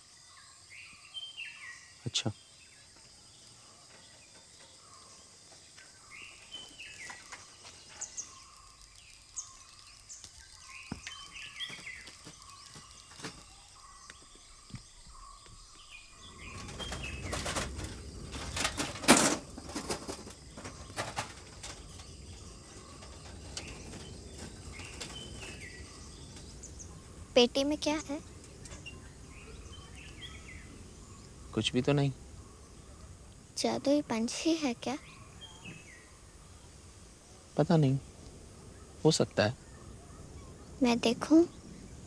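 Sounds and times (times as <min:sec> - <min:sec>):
small birds chirping: 0:00.0 - 0:42.0
rustling: 0:16.1 - 0:27.1.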